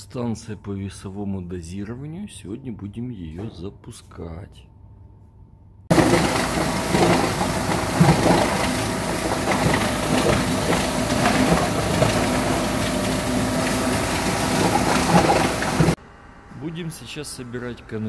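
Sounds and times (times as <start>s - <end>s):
plastic-processing machinery running: 5.9s - 16.0s.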